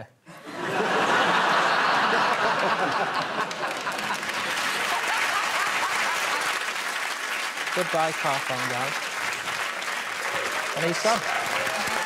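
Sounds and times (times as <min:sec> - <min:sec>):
studio audience laughing: 0:00.3 - 0:07.0
audience applauding: 0:00.7 - 0:12.0.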